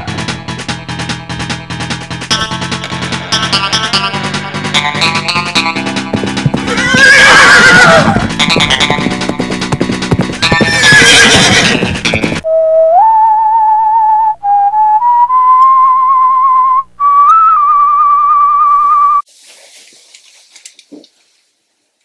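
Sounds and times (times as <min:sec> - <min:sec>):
music: 0:00.0 - 0:14.4
horse whinnying: 0:06.6 - 0:08.4, 0:10.4 - 0:11.9
person whistling slow tune: 0:12.5 - 0:19.2.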